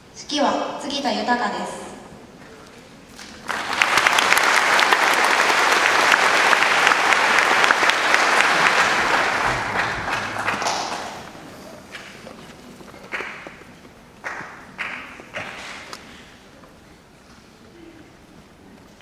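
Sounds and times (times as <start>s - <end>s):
audience applauding: 3.2s - 12.3s, 12.9s - 16.0s.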